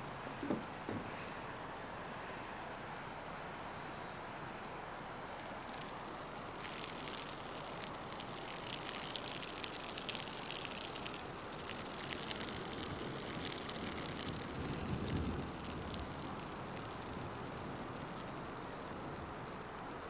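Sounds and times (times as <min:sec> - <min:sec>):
steady hiss: 0:04.6 - 0:20.0
urine splashing on grass: 0:05.3 - 0:19.0.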